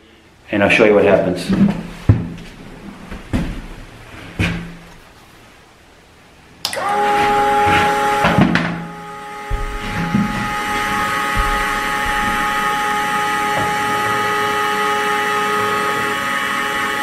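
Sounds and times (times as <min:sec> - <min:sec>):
electric door motor whining: 0:06.7 - 0:17.0
light knocks: 0:09.5 - 0:12.8.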